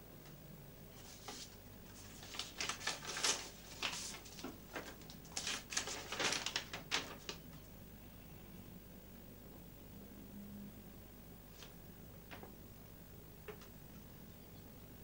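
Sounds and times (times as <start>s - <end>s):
paper rustling: 0.9s - 7.4s.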